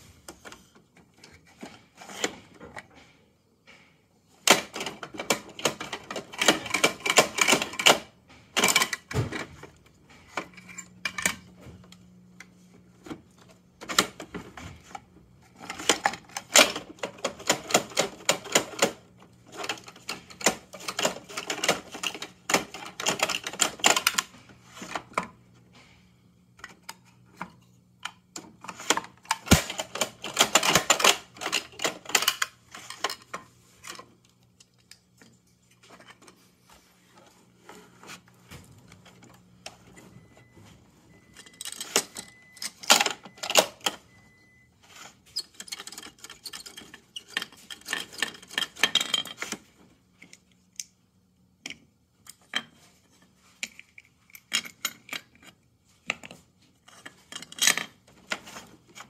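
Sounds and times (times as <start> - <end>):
plastic toy clicking and clattering: 3.7 - 11.5, 13.0 - 25.3, 26.6 - 36.4, 41.4 - 44.0, 45.4 - 50.9, 53.6 - 59.0.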